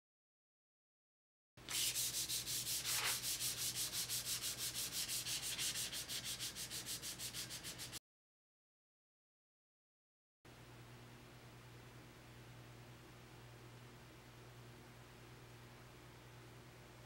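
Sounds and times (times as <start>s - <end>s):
paper pad rasping on steel: 1.7s - 8.0s.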